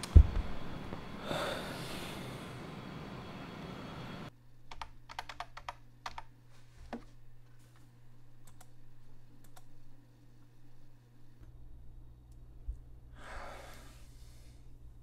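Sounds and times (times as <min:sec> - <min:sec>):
low electrical hum: 0:00.0 - 0:15.0
computer keyboard clicks: 0:04.7 - 0:06.3, 0:08.5 - 0:08.7.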